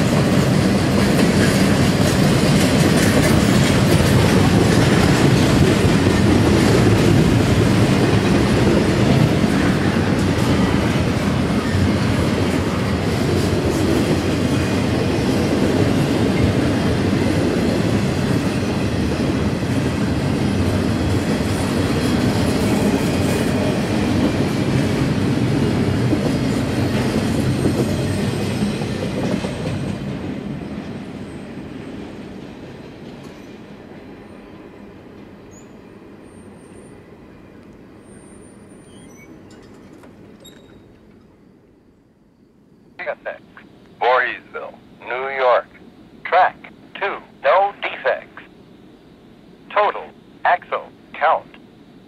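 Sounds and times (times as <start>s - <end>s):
train wheels clattering on rail: 0.0s - 33.8s, 39.0s - 41.4s.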